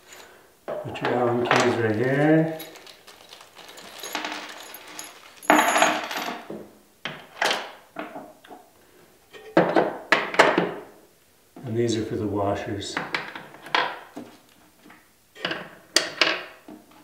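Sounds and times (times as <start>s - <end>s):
metal hardware clinking: 0.0s - 0.4s, 1.5s - 6.5s
rustling: 0.0s - 0.4s, 1.3s - 6.2s.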